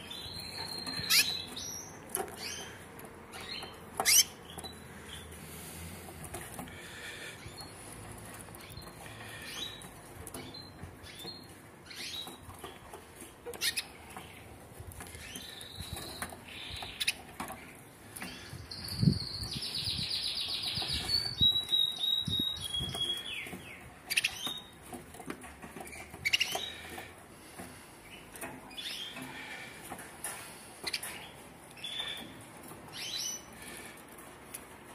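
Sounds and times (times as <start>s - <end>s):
canary singing: 0.0s - 6.4s, 7.4s - 17.6s, 18.2s - 24.8s, 25.5s - 27.1s, 28.0s - 29.6s, 30.8s - 33.6s.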